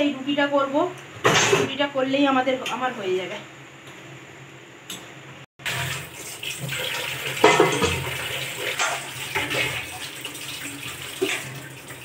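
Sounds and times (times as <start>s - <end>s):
tap water running into sink: 5.6s - 12.0s
utensils clattering: 7.4s - 10.0s.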